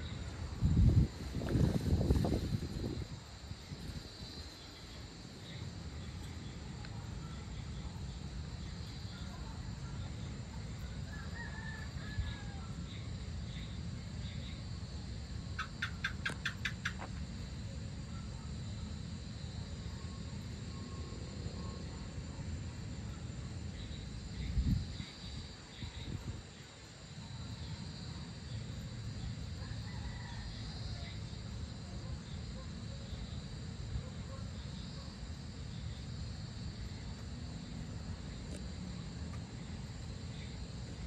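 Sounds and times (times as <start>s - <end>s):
insects chirring: 0.0s - 41.0s
sharp clicking chirps: 15.6s - 17.2s.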